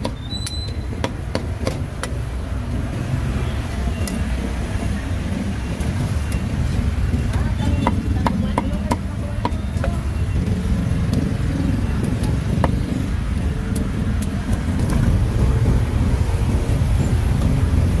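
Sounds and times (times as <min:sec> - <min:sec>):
sharp knocks: 0:00.0 - 0:02.2
city street traffic rumble: 0:00.0 - 0:18.0.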